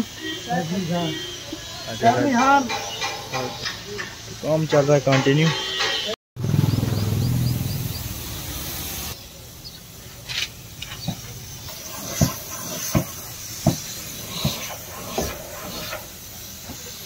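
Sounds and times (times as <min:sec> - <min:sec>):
sharp knocks: 0:02.4 - 0:06.2
spray painting hiss: 0:07.3 - 0:17.0.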